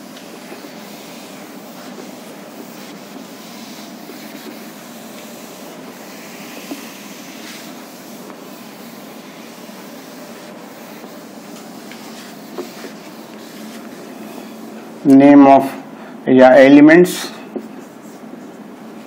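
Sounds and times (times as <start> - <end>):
eraser rubbing on whiteboard: 0.0 - 14.9.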